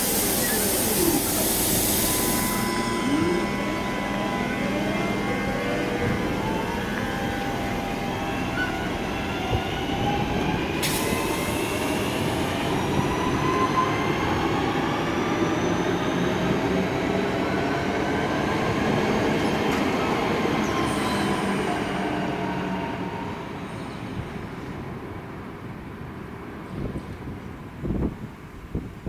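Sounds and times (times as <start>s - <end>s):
train wheels rumbling on rails: 0.0s - 22.5s.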